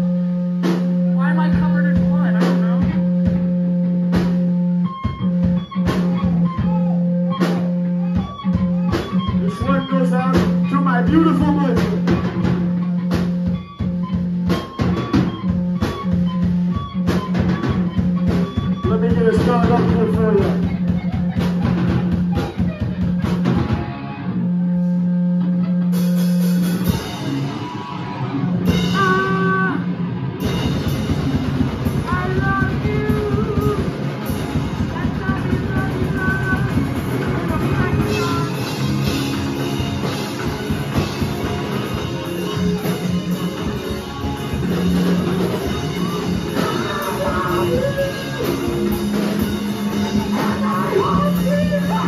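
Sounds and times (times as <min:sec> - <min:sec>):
live rock band playing: 0:00.0 - 0:52.0
person singing: 0:28.8 - 0:30.0, 0:32.0 - 0:34.2, 0:34.8 - 0:38.9, 0:45.6 - 0:52.0.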